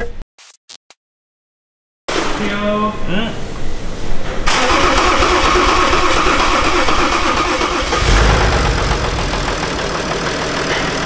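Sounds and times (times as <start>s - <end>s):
diesel engine idling: 4.5s - 11.0s.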